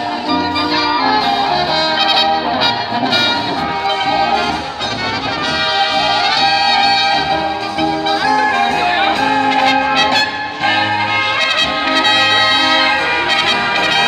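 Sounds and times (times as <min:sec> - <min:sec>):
bass notes beat: 0:00.0 - 0:14.0
brass band playing dance tune: 0:00.0 - 0:14.0
trumpets: 0:00.0 - 0:14.0.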